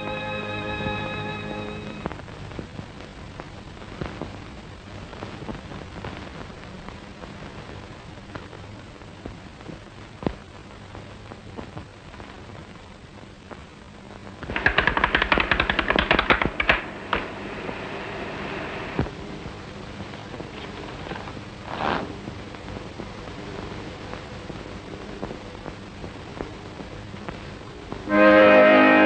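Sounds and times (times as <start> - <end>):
film soundtrack hiss: 0.0 - 29.0
button accordion rattling clatter: 14.5 - 16.8.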